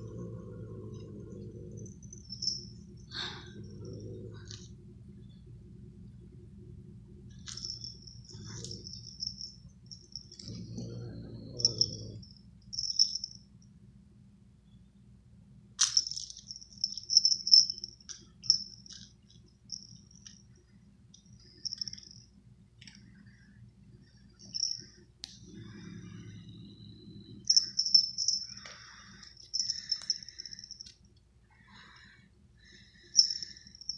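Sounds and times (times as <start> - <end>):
jingle bell rattling: 1.8 - 4.2, 7.3 - 13.4, 15.8 - 20.5, 21.6 - 22.3, 24.4 - 24.9, 27.4 - 30.9, 33.1 - 33.9.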